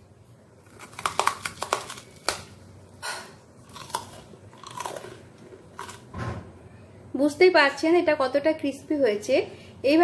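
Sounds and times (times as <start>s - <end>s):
crunchy snack being chewed: 0.6s - 2.5s, 3.6s - 6.1s.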